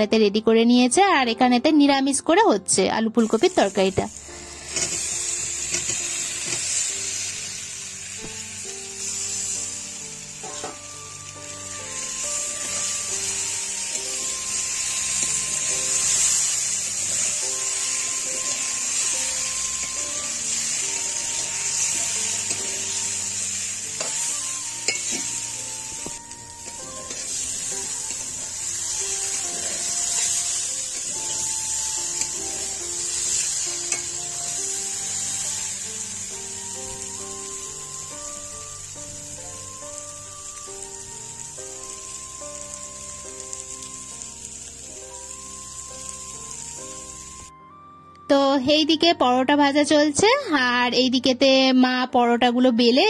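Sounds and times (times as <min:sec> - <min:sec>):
vegetables sizzling in oil: 0:03.2 - 0:47.5
metal spatula stirring in pan: 0:04.6 - 0:06.8, 0:26.7 - 0:34.2.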